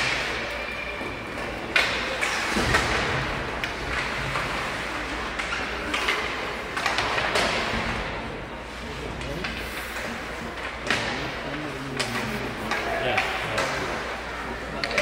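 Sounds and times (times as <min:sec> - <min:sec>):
hockey sticks and puck clacking: 0:00.0 - 0:15.0
noisy rink wash: 0:00.0 - 0:15.0.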